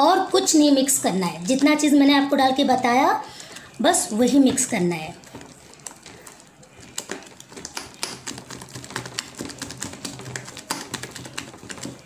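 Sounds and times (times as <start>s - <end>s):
hand slapping batter in bowl: 4.2s - 12.0s.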